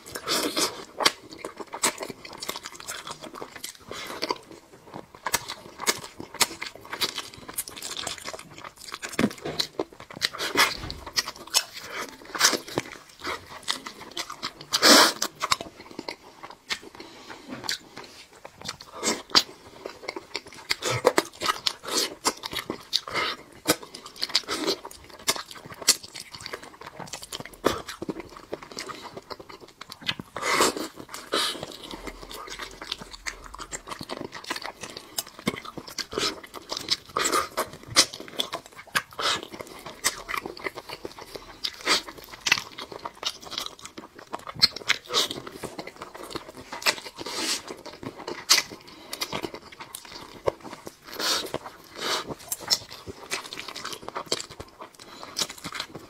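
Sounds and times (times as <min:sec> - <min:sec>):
person chewing meat: 0:00.0 - 0:56.0.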